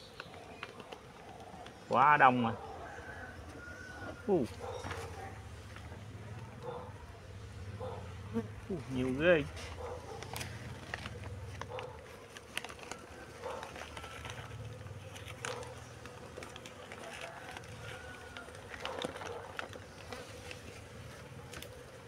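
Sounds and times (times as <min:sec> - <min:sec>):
bees buzzing: 0:00.0 - 0:22.0
plastic sheet rustling: 0:08.9 - 0:22.0.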